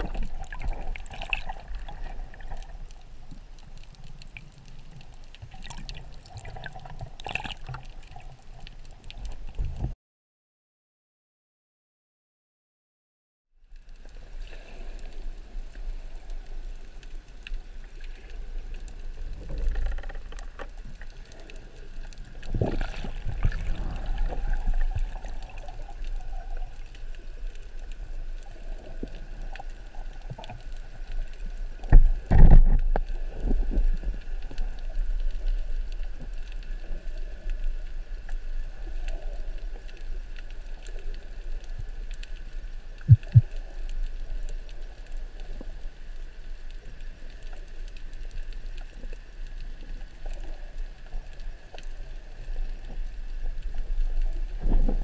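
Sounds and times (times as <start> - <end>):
muffled underwater rumble: 0.0 - 10.0, 13.6 - 55.0
faint hiss: 13.7 - 55.0.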